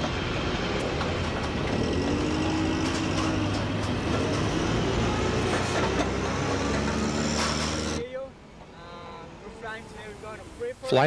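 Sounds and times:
forklift engine running: 0.0s - 8.0s.

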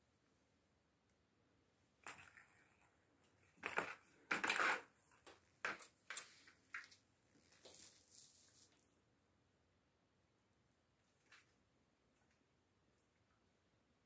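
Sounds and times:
plastic ball rolling in track: 3.6s - 5.0s.

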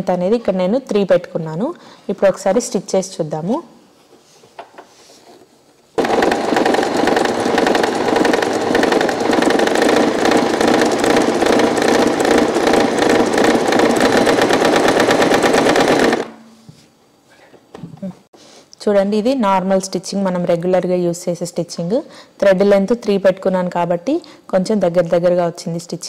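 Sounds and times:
electric sewing machine stitching: 6.0s - 16.4s.

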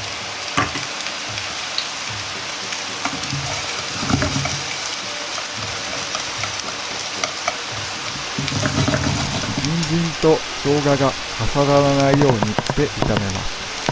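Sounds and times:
vegetables sizzling in oil: 0.0s - 13.9s
chopsticks tapping pan: 0.6s - 1.5s, 2.9s - 13.9s.

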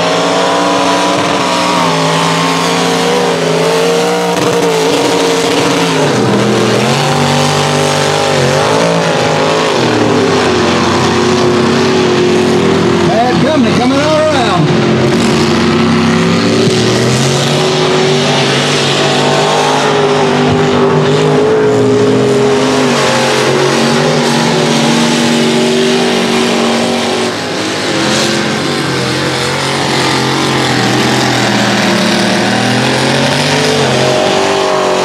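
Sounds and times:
truck engines revving: 0.0s - 35.0s.

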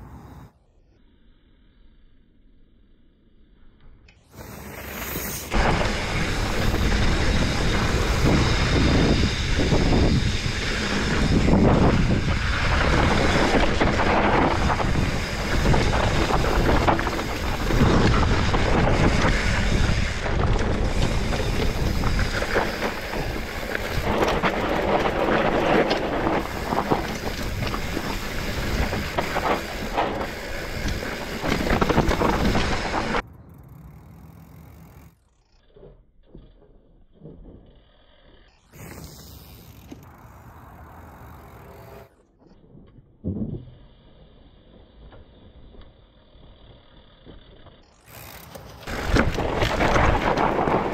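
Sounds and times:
wind buffeting microphone: 5.6s - 33.3s
bike rattling and knocking: 5.6s - 35.5s, 45.9s - 50.9s.

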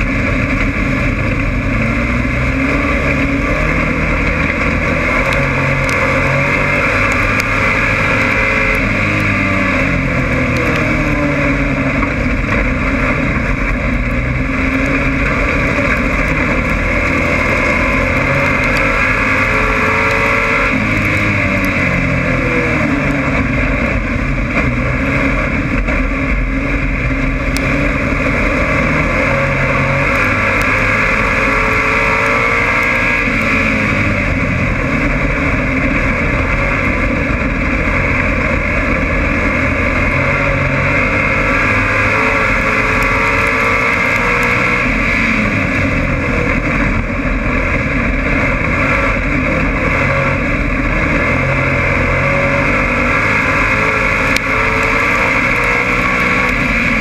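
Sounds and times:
race car engine revving: 0.0s - 57.0s
wind and road noise: 0.0s - 57.0s.

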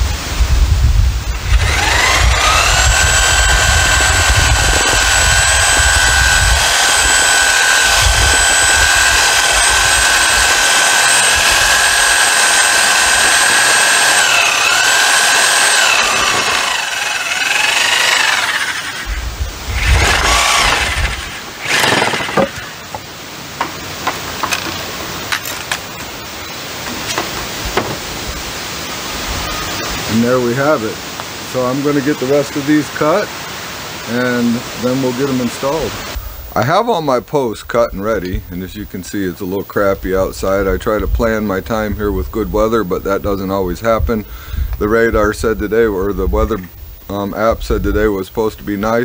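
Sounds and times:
reciprocating saw cutting wood: 1.3s - 25.8s
wood knocks: 26.9s - 28.1s.

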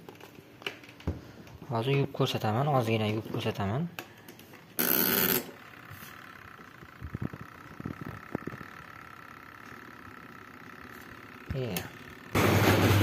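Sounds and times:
washing machine motor whine: 4.8s - 13.0s.

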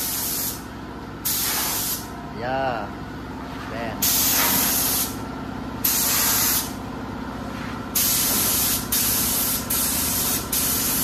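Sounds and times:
spray gun hissing: 0.0s - 0.6s, 1.2s - 2.1s, 4.0s - 5.2s, 5.8s - 6.8s, 8.0s - 11.0s.

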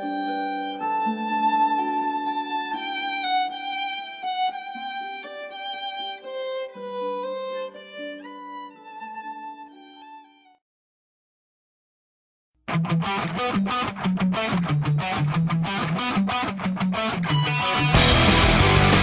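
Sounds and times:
slow instrumental music: 0.0s - 10.6s, 15.1s - 19.0s.

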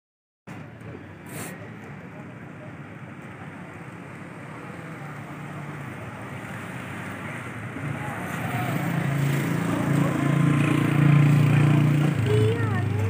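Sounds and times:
road and wind noise: 0.5s - 13.0s
vehicle engine running: 9.5s - 13.0s.

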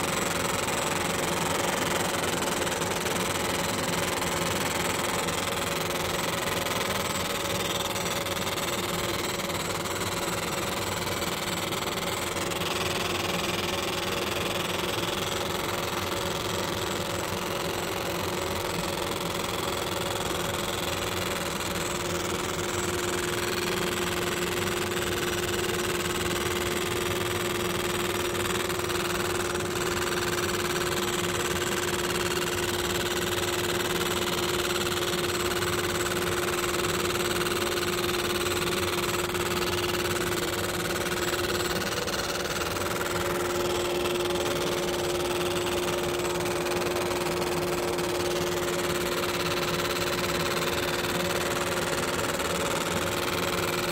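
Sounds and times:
constant machine tone: 0.0s - 53.9s
laser engraver hum and hiss: 0.0s - 53.9s.

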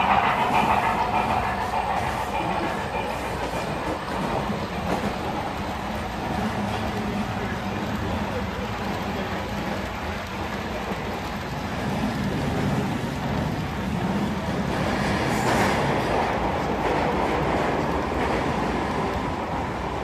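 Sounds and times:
model train wheels rolling on rails: 0.0s - 20.0s.

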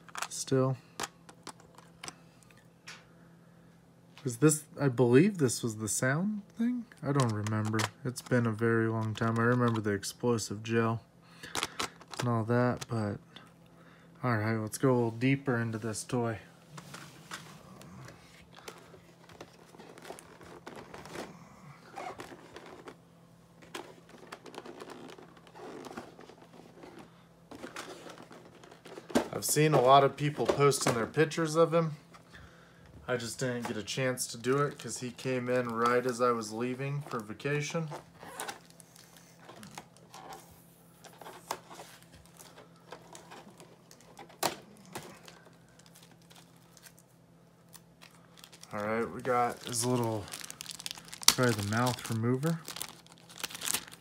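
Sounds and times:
faint steady hum: 0.0s - 54.0s
plastic trays crinkling: 17.2s - 21.3s, 22.0s - 23.0s, 23.6s - 31.1s, 47.7s - 54.0s.

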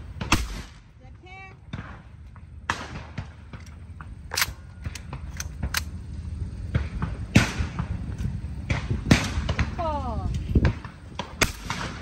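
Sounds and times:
shotgun shots: 0.2s - 0.9s, 1.7s - 6.0s, 6.6s - 8.0s, 10.8s - 12.0s.

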